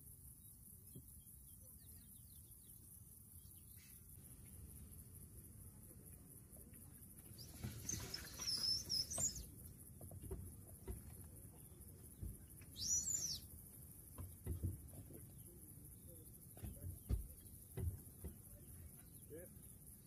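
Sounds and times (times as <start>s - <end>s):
bird calls: 7.3s - 13.6s
faint low knocks: 9.2s - 12.8s, 14.0s - 19.4s.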